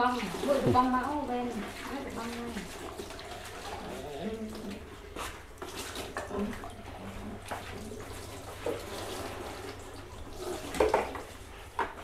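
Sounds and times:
water poured and splashing in basin: 0:00.0 - 0:11.7.

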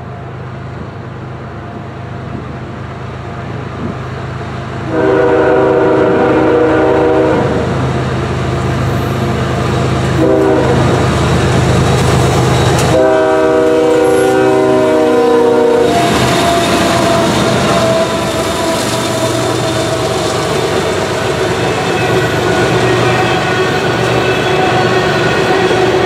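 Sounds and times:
locomotive air horn blasts: 0:04.8 - 0:07.8, 0:10.2 - 0:11.0, 0:12.8 - 0:26.0
locomotives passing close by: 0:07.6 - 0:26.0.

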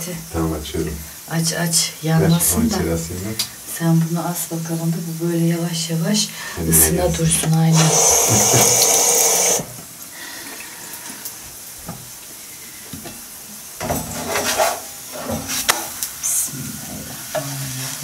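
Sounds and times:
tap water running: 0:00.0 - 0:01.4, 0:02.0 - 0:04.2, 0:06.5 - 0:12.3
kitchen handling sounds: 0:13.8 - 0:16.0.

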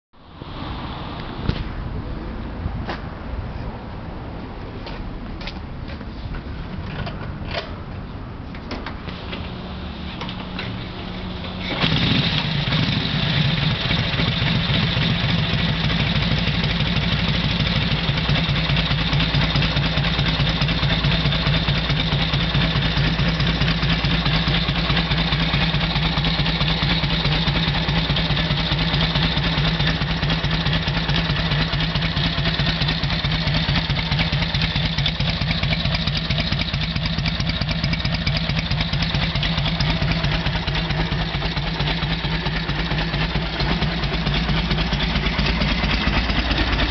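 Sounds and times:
motorcycle engine idling: 0:09.6 - 0:46.9.

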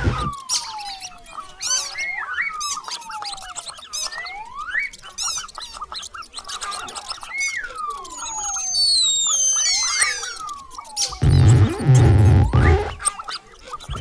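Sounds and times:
mouse squeaks and chirps: 0:00.0 - 0:14.0
sliding whistles: 0:06.7 - 0:14.0
loud low sound: 0:11.2 - 0:13.0.

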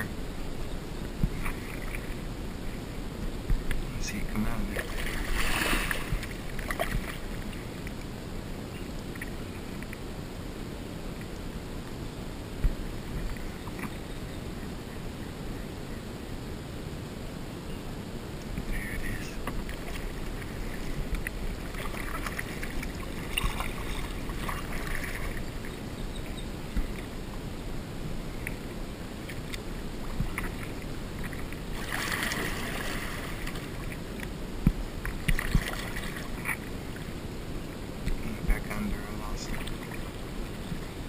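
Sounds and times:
paddle splashing in water: 0:01.3 - 0:02.2, 0:04.6 - 0:08.0, 0:19.4 - 0:25.8, 0:29.2 - 0:37.2, 0:39.3 - 0:40.9.

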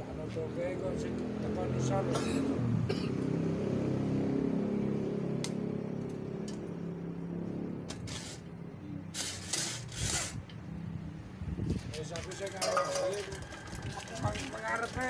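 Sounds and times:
rustling and scraping: 0:07.9 - 0:08.5, 0:09.1 - 0:10.6.

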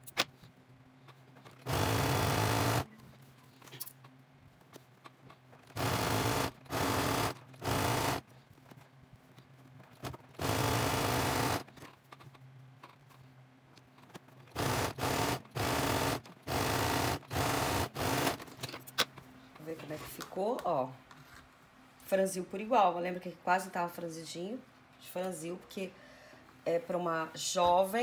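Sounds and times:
sewing machine stitching: 0:01.5 - 0:02.9, 0:05.6 - 0:08.2, 0:09.9 - 0:11.8, 0:14.5 - 0:18.6.

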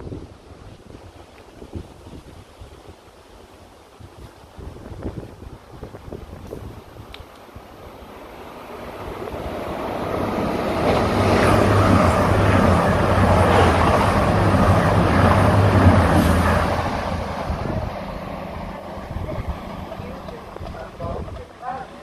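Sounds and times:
diesel passenger train passing: 0:07.8 - 0:22.0.

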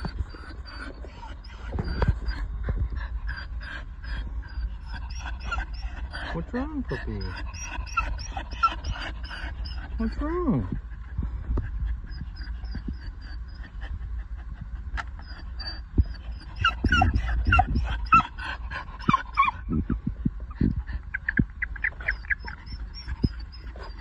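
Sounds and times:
dog whimpering and whining: 0:00.0 - 0:24.0.

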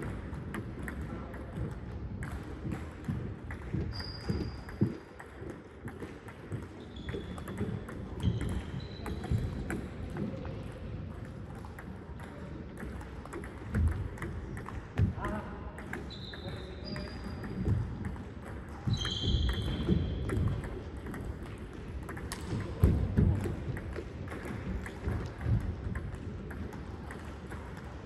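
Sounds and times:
shoes squeaking on floor: 0:03.7 - 0:05.0, 0:06.7 - 0:07.6, 0:08.2 - 0:09.6, 0:16.1 - 0:17.5, 0:18.8 - 0:20.2.

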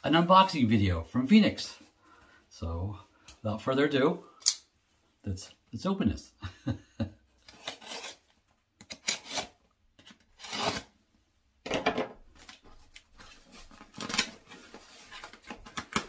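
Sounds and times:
package scraping strokes: 0:10.3 - 0:10.9
package rustling: 0:12.3 - 0:16.0.

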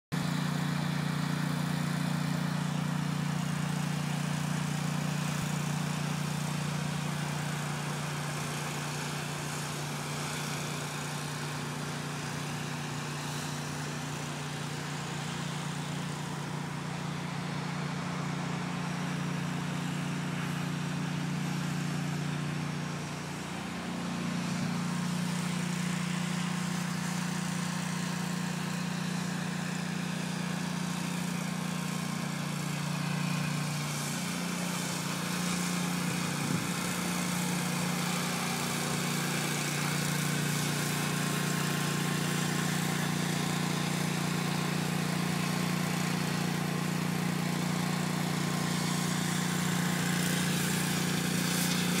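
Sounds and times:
engine running steadily: 0:00.1 - 0:52.0.

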